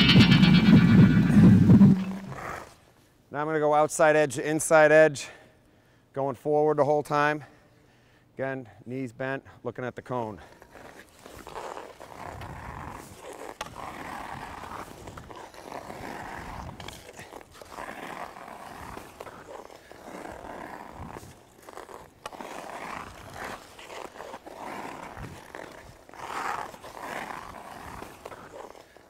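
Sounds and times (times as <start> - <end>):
skate blades scraping ice: 0.0 - 2.8, 10.4 - 29.0.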